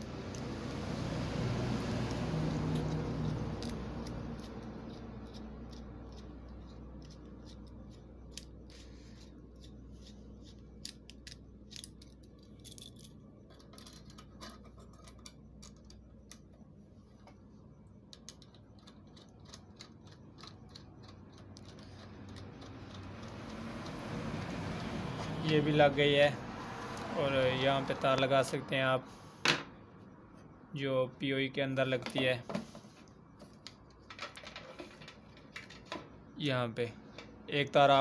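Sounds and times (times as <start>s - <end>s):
faint low hum: 0.0s - 26.5s.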